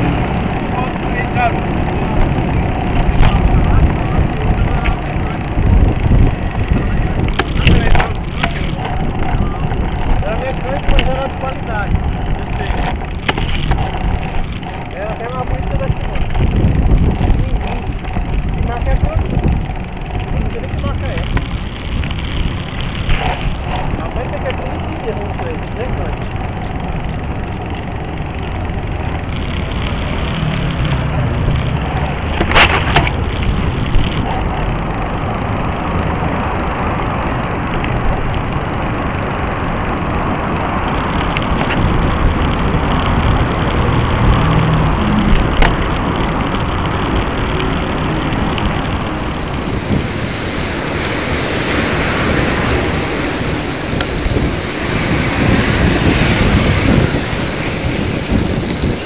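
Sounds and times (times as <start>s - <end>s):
sharp knocks and rattles: 0.0s - 21.7s, 22.8s - 29.4s, 30.5s - 36.6s
bicycle rolling on pavement: 0.0s - 59.0s.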